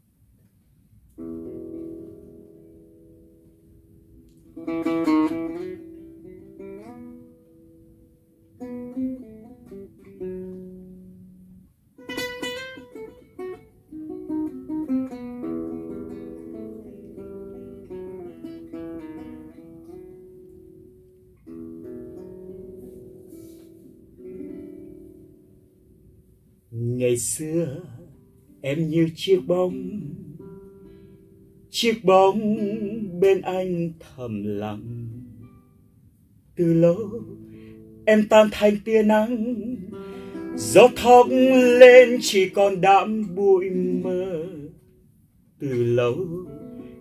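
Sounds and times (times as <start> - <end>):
acoustic guitars playing: 1.0 - 47.0
sharp strummed guitar chords: 36.6 - 45.0.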